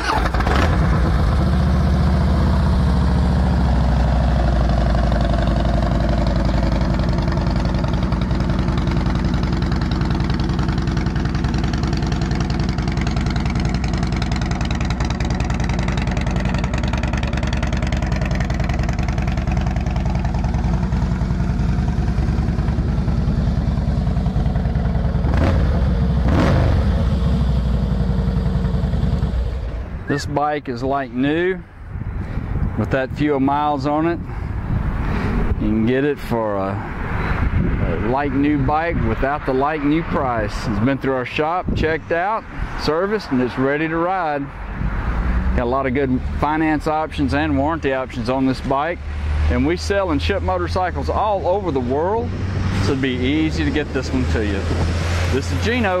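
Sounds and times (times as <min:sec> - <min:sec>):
motorcycle engine idling: 0:00.1 - 0:30.2.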